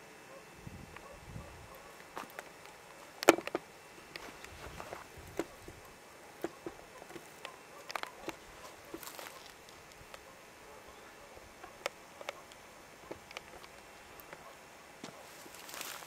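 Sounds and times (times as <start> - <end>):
faint steady background noise: 0.0 - 16.0
small clicks and crackles: 1.7 - 10.4, 11.6 - 14.5, 15.2 - 16.0.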